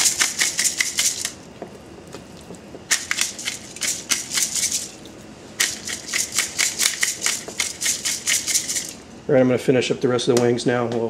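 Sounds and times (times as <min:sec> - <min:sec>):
pepper mill grinding: 0:00.0 - 0:01.4, 0:02.9 - 0:09.0.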